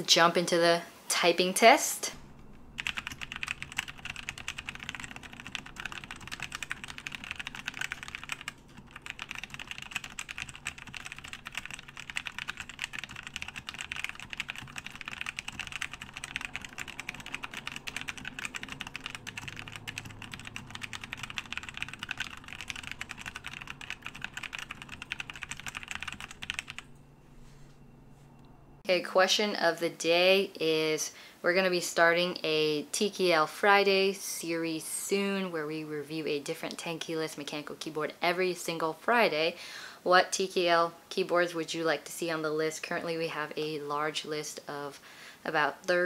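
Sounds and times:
fast mechanical keyboard typing: 2.6s - 26.9s.

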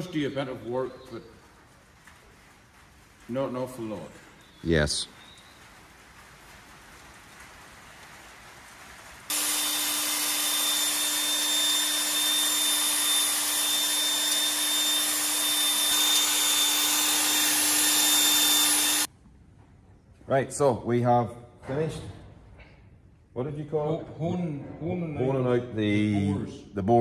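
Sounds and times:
electric drill whining: 9.3s - 19.1s.

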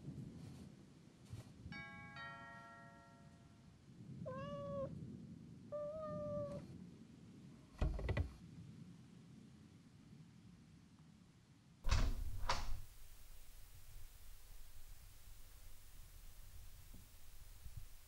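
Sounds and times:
kitten meowing: 4.3s - 4.9s, 5.7s - 6.6s.

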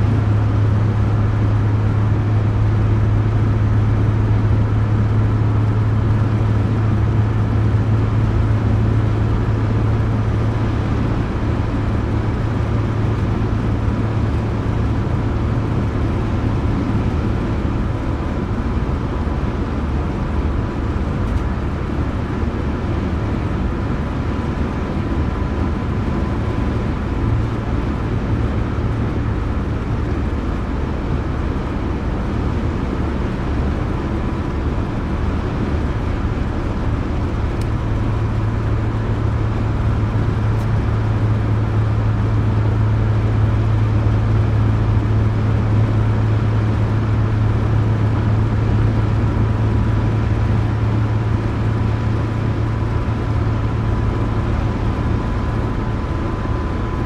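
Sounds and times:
car engine drone: 0.0s - 57.0s
road noise: 0.0s - 57.0s.

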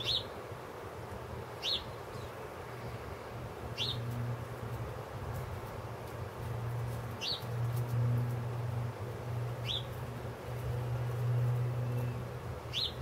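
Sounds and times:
sparrows chirping: 0.0s - 0.4s, 1.6s - 4.3s, 6.7s - 13.0s
steady low hum: 0.0s - 13.0s.

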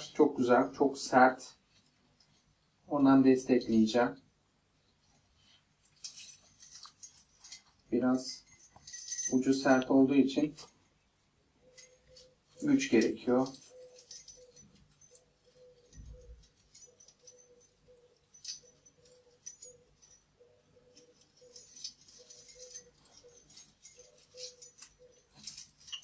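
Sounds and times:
plastic chain links clicking: 5.8s - 9.8s, 11.7s - 26.0s
small bells jingling: 5.8s - 11.0s, 11.6s - 26.0s.

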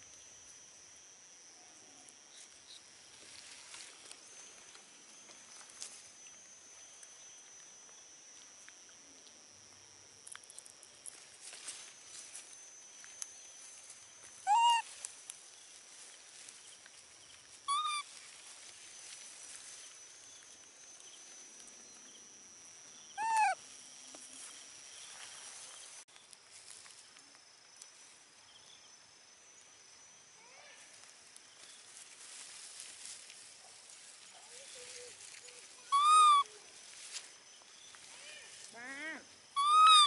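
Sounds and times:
thin steady high tone: 0.0s - 40.0s
baby monkey coo calls: 14.4s - 14.9s, 17.6s - 18.1s, 23.2s - 23.6s, 35.8s - 36.7s, 38.1s - 40.0s.

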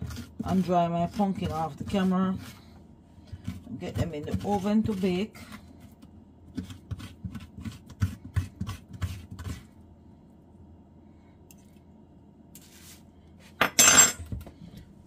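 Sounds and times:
spoon scraping squash: 0.0s - 9.7s.

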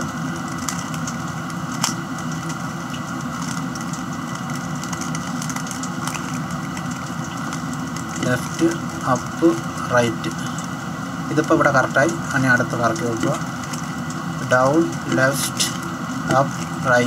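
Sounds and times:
machine hum: 0.0s - 17.0s.

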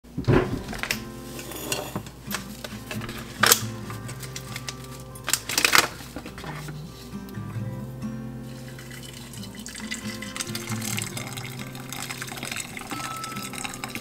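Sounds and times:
background music: 0.1s - 14.0s
foil bag crinkling: 2.2s - 7.0s.

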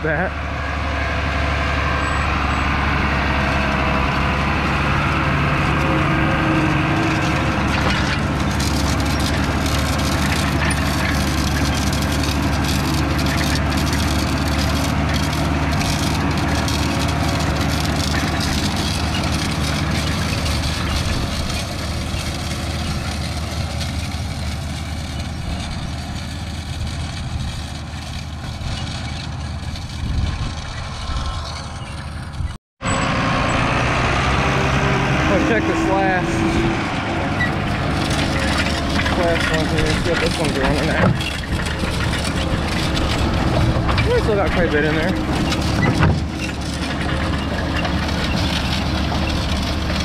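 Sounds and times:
tractor engine running: 0.0s - 50.0s
clicks and rattles: 7.2s - 24.2s, 37.4s - 50.0s.

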